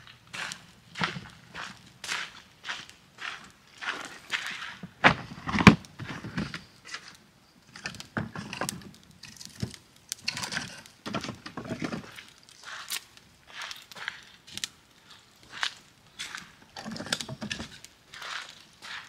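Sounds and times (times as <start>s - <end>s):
footsteps on gravel: 0.0s - 7.1s, 11.5s - 19.0s
firewood clunking and scraping: 0.0s - 19.0s.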